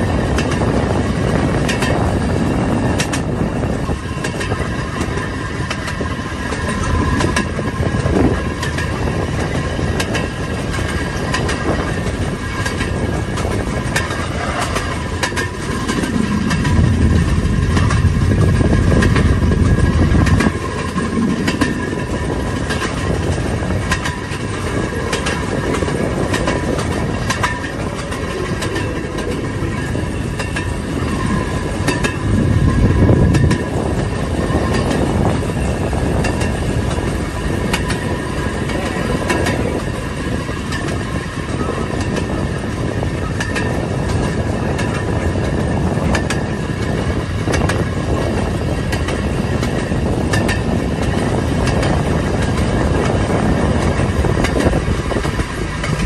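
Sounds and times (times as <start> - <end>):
rail speeder motor and wheels rumbling: 0.0 - 56.0
wheels clicking over rail joints: 0.0 - 56.0
thin steady whine: 2.0 - 56.0.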